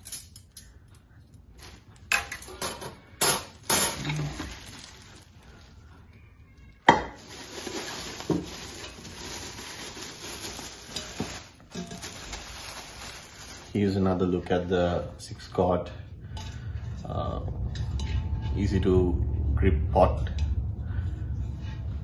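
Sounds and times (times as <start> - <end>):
plastic wrap crinkling: 1.5 - 2.4, 3.5 - 14.7.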